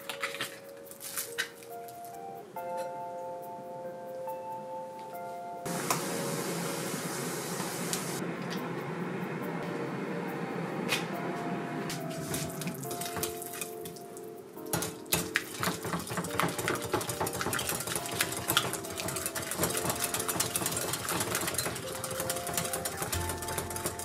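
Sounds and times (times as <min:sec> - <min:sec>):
soft background music: 0:00.0 - 0:24.0
whisk beating in glass bowl: 0:15.4 - 0:24.0.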